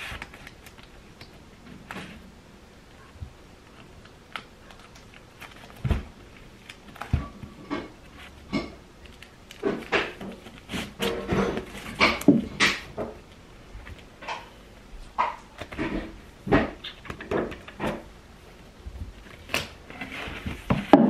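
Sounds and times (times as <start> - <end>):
record sleeves clicking and knocking: 3.1 - 18.1, 18.8 - 21.0
dull thumps: 5.7 - 6.2.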